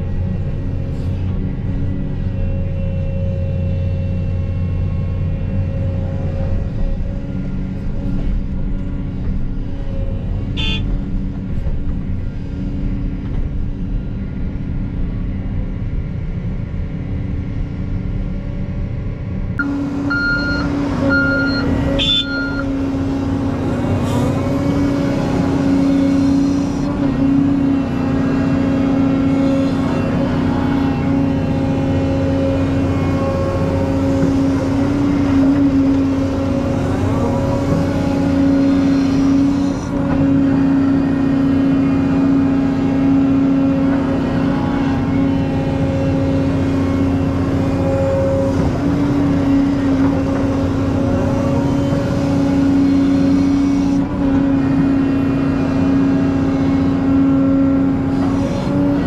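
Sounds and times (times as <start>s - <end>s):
heavy diesel engine running: 0.0s - 59.0s
reverse alarm beeps: 19.6s - 22.7s.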